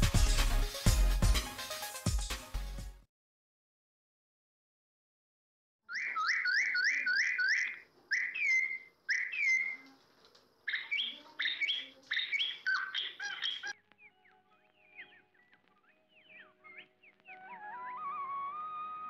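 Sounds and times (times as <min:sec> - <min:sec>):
small songbird chirping: 0:05.9 - 0:10.0, 0:10.6 - 0:18.1.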